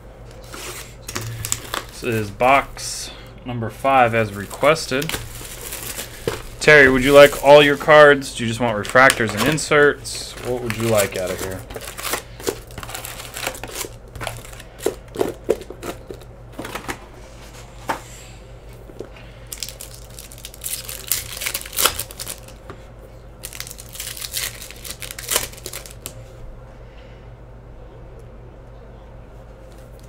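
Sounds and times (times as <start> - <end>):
foil packs rustling and clicking: 0.4 - 2.6, 4.0 - 17.0, 19.5 - 22.6, 23.4 - 26.2
foil wrapper crinkling as torn: 0.7 - 2.4, 4.2 - 16.2, 19.5 - 22.6, 23.4 - 26.2.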